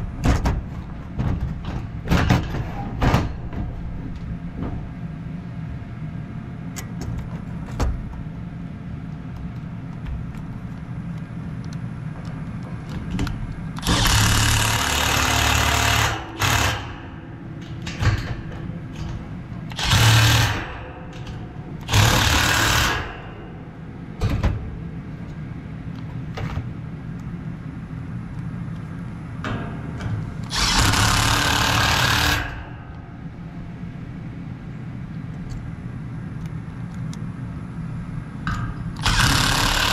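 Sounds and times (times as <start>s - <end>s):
steady low hum: 0.0s - 39.9s
impact driver driving screws: 30.5s - 32.6s.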